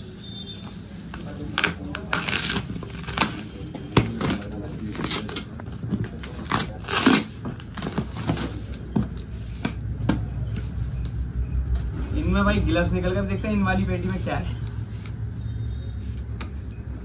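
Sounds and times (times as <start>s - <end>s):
plastic wrap crinkling and tearing: 1.1s - 8.6s.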